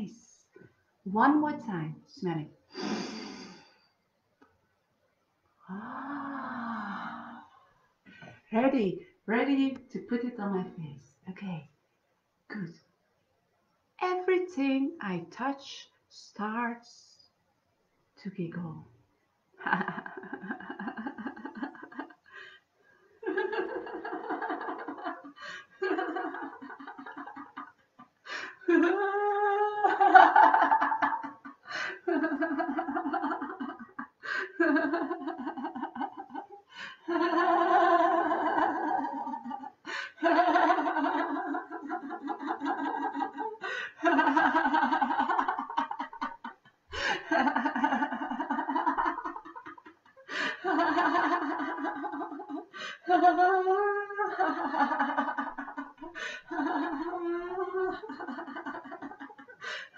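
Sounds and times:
woman laughing: 28.7s - 59.9s.

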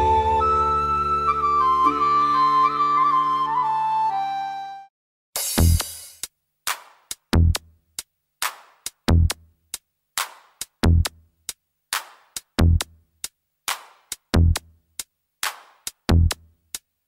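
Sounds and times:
electronic drum-machine beat: 5.4s - 16.9s.

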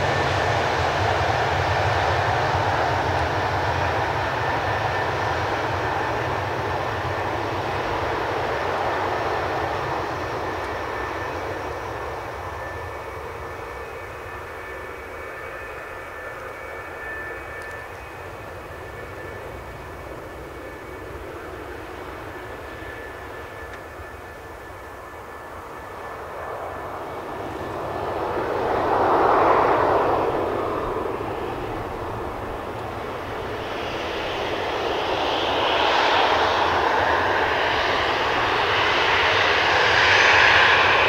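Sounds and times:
jet engines running: 0.0s - 41.0s.

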